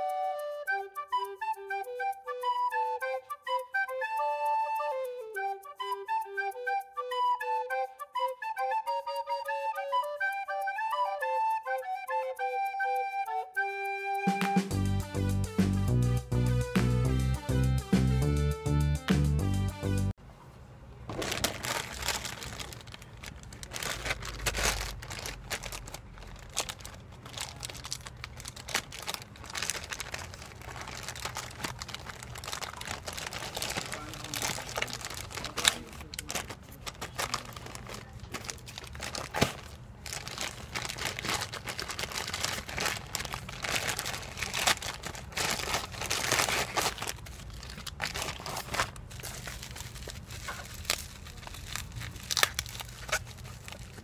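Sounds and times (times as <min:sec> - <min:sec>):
plastic and bubble wrap crinkling: 0:21.1 - 0:54.0
plastic pouch tearing: 0:21.1 - 0:54.0.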